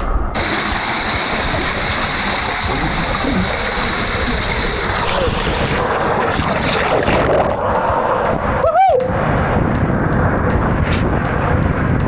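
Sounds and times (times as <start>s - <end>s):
wind on microphone: 0.0s - 12.0s
water rushing down a slide: 0.4s - 8.4s.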